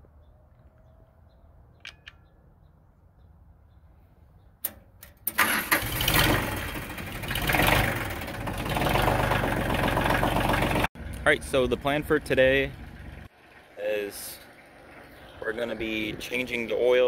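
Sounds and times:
tractor diesel engine running: 0:05.2 - 0:13.8.

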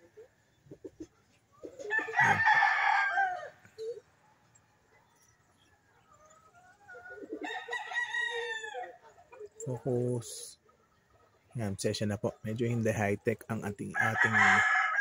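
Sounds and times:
rooster crowing: 0:01.9 - 0:03.9, 0:07.4 - 0:09.0, 0:13.9 - 0:15.0.

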